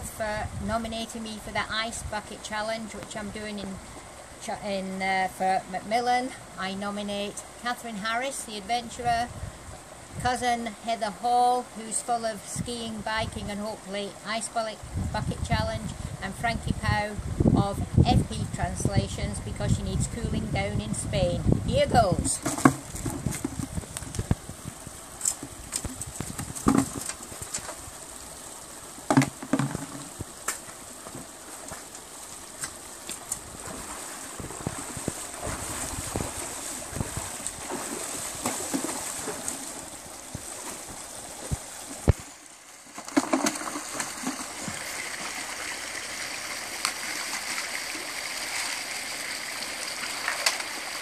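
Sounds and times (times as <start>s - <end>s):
stream running over stones: 21.2s - 51.0s
splashing of wading: 22.2s - 51.0s
sharp knocks: 29.1s - 30.1s.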